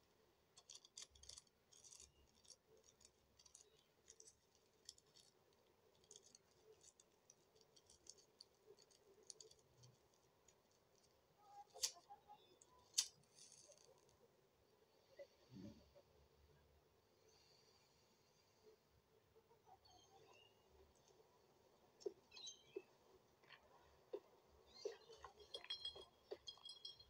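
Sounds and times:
handling ticks and rustles: 0.0 - 14.2, 20.3 - 27.0.

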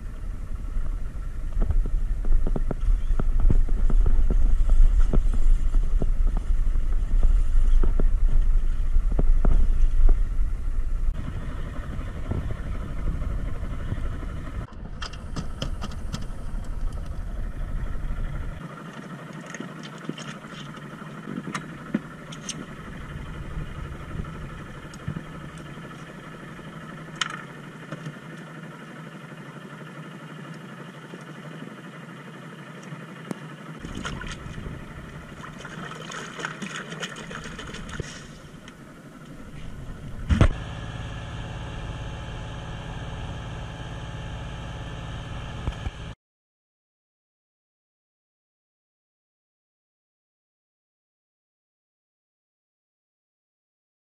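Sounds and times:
wind on microphone: 0.0 - 18.6, 22.6 - 25.5
boat engine running: 0.0 - 46.2.

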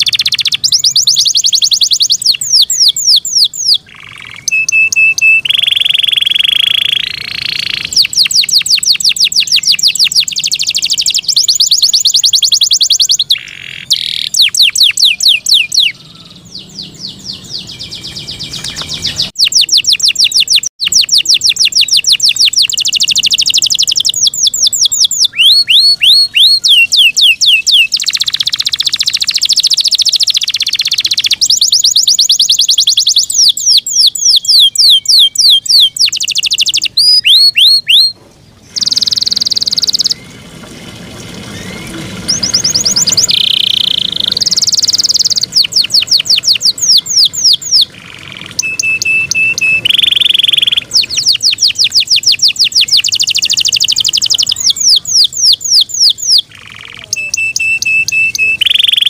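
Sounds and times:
canary singing trills: 0.0 - 40.5, 41.5 - 59.0.

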